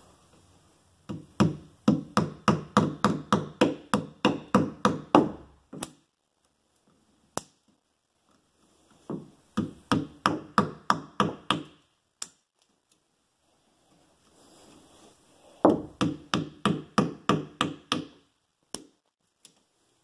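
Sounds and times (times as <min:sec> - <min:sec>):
small hammer tapping: 0:15.7 - 0:18.9.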